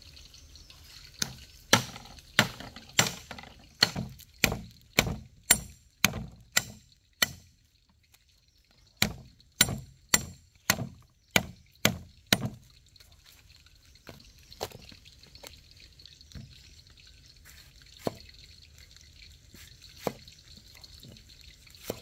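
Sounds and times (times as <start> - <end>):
knife chopping on wooden board: 1.7 - 7.4.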